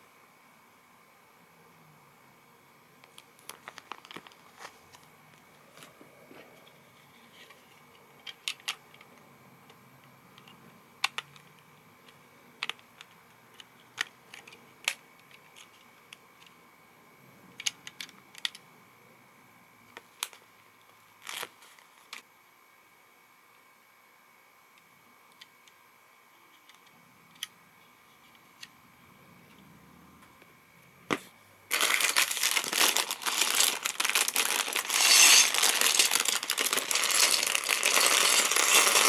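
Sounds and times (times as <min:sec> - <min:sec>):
plastic bricks rustling: 0:31.7 - 0:39.0.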